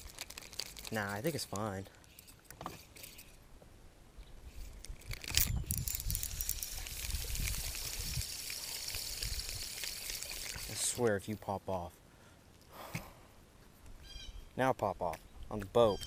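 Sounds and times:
water trickling: 0:05.7 - 0:11.1.

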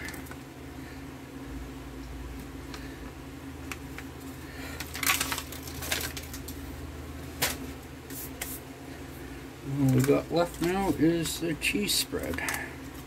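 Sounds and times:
plastic packaging crinkling: 0:03.7 - 0:06.7, 0:09.7 - 0:13.0.

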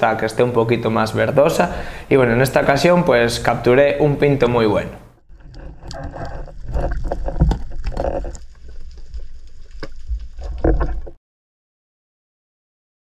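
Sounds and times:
low rumble of water: 0:05.3 - 0:11.2
underwater knocks and clicks: 0:05.3 - 0:11.2.

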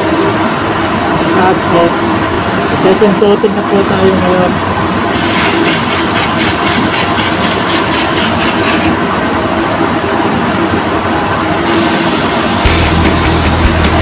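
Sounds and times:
rushing air in spray booth: 0:05.0 - 0:09.1, 0:11.5 - 0:14.0
spray gun hissing: 0:05.1 - 0:09.0, 0:11.6 - 0:13.2.

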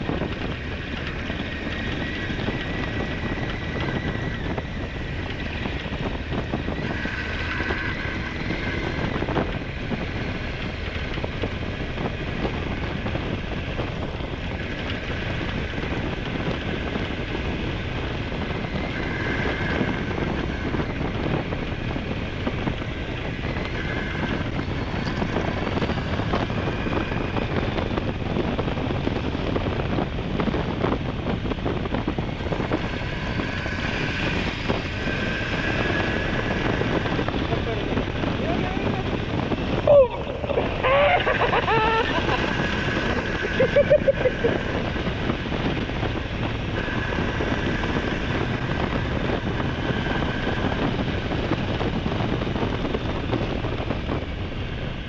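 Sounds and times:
motorcycle engine running: 0:00.0 - 0:55.0
wind rushing over microphone: 0:00.0 - 0:55.0.

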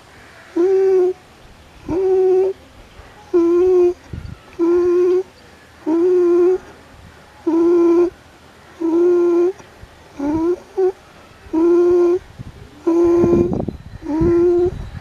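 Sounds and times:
pigeon cooing: 0:00.5 - 0:01.2, 0:01.8 - 0:02.6, 0:03.3 - 0:06.8, 0:07.4 - 0:08.2, 0:08.8 - 0:15.0.

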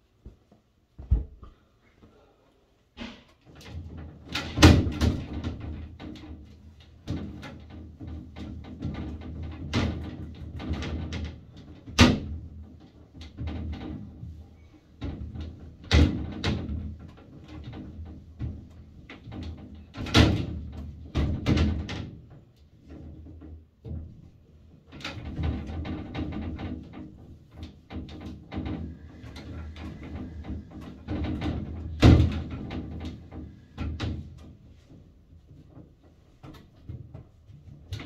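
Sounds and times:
glass shower panels rattling: 0:24.9 - 0:34.4.

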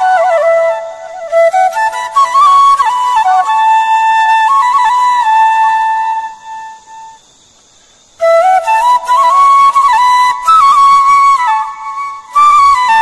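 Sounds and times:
flute melody: 0:00.0 - 0:07.2, 0:08.2 - 0:13.0.

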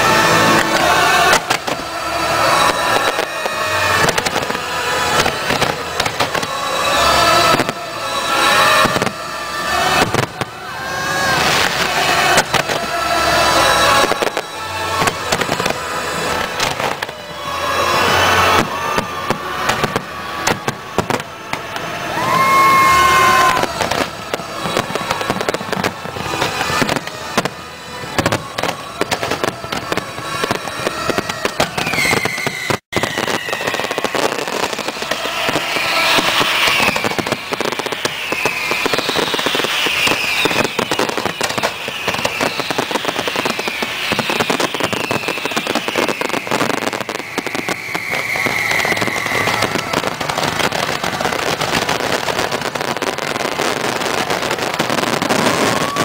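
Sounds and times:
music: 0:00.0 - 0:32.0
fireworks bangs and crackling: 0:00.0 - 0:56.0
high gliding firework whistles: 0:00.0 - 0:56.0.

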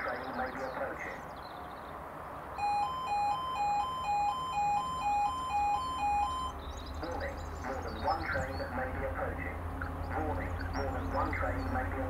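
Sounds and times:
level crossing two-tone alarm: 0:02.6 - 0:06.6.

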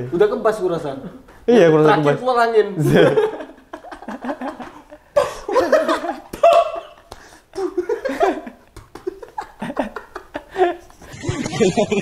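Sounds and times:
men laughing: 0:02.8 - 0:12.0.

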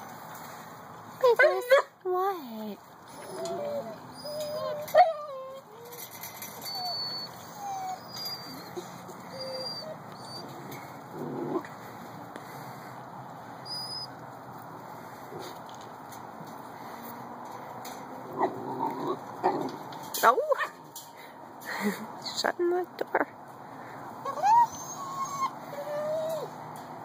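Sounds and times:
puppies whining and yipping: 0:03.1 - 0:11.6, 0:13.6 - 0:14.2, 0:24.2 - 0:26.6.

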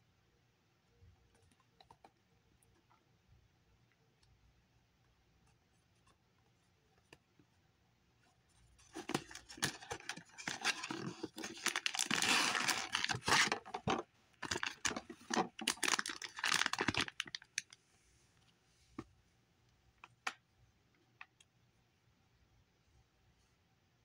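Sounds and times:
foil bag crinkling and tearing: 0:09.1 - 0:13.7, 0:14.4 - 0:17.7.

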